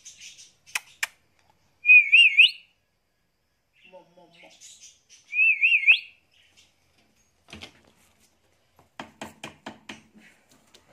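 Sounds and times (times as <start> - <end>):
sharp clicks: 0.7 - 1.5
parakeet warbling whistle: 1.8 - 2.7, 5.3 - 6.2.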